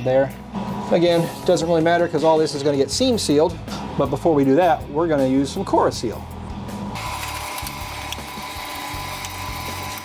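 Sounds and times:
tape being peeled: 0:07.0 - 0:10.0.

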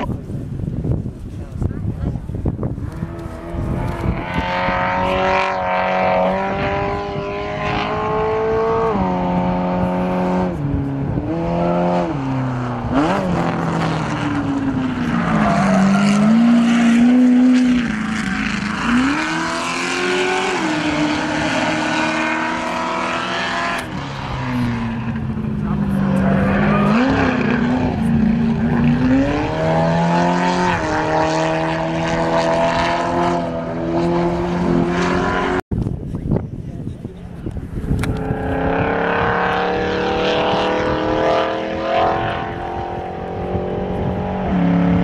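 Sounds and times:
truck engine revving: 0:11.2 - 0:35.6.

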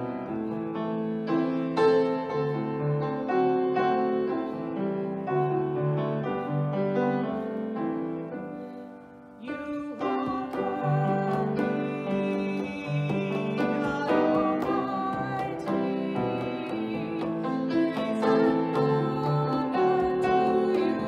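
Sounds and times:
piano playing a hymn: 0:00.0 - 0:21.0
woman singing: 0:09.4 - 0:21.0
conga drum strokes: 0:09.5 - 0:21.0.

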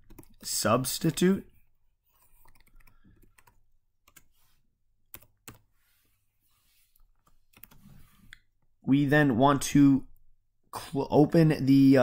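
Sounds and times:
computer keyboard keystrokes: 0:02.4 - 0:04.3, 0:05.1 - 0:05.6.

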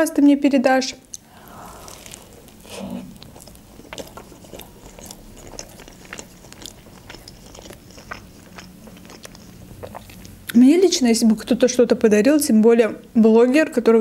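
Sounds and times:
chewing toasted bread crunches: 0:01.8 - 0:10.6.

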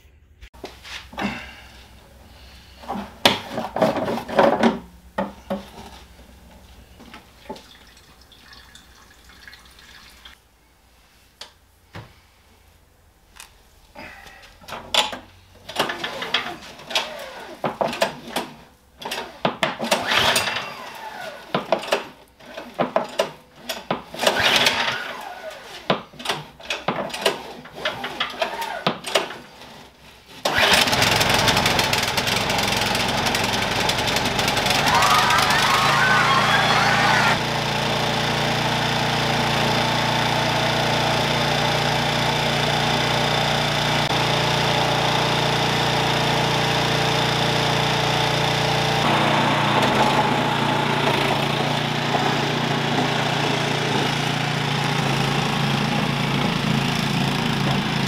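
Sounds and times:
snowblower engine cranking: 0:14.7 - 0:29.7, 0:30.4 - 0:58.0
snowblower engine running: 0:30.5 - 0:58.0.

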